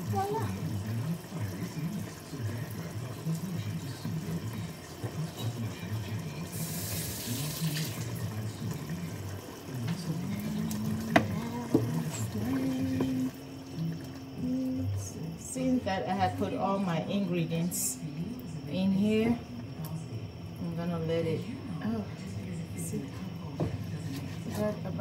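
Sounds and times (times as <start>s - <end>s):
kitchen tap running: 0.0s - 22.0s
television talking: 0.0s - 25.0s.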